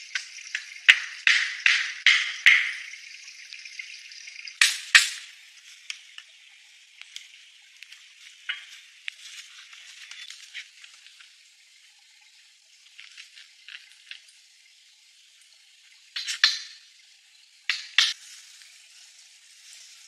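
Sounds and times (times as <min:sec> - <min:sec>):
sharp knocks: 0:00.9 - 0:03.0
faint crackles and rustling: 0:05.5 - 0:11.7, 0:12.8 - 0:14.4, 0:18.2 - 0:20.0.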